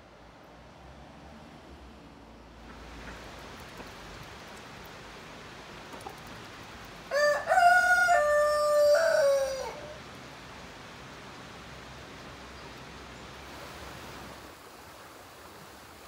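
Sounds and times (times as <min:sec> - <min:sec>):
faint outdoor hiss: 0:00.0 - 0:16.0
rooster crowing: 0:07.1 - 0:10.0.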